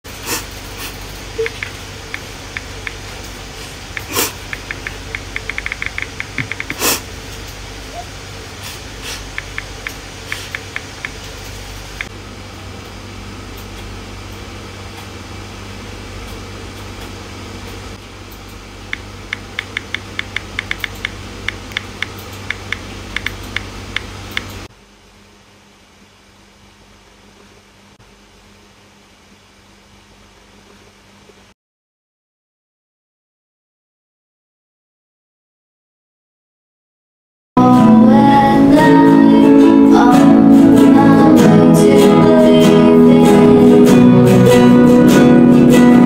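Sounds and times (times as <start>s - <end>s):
steady low hum: 0.1s - 31.6s
person sniffing: 0.2s - 1.0s, 3.6s - 4.4s, 6.6s - 7.1s, 8.6s - 9.3s
touchscreen keyboard taps: 4.0s - 6.8s, 19.3s - 24.5s.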